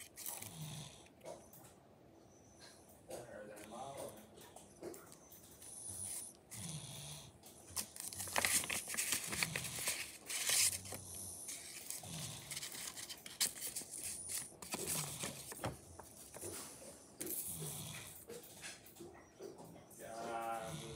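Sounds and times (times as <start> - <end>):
paper and tape crinkling: 7.6 - 17.4.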